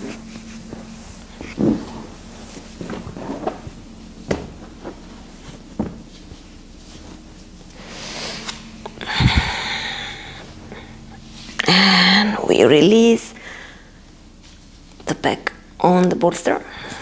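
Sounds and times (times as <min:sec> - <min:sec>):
cushion thumping and rustling: 0:00.0 - 0:07.6.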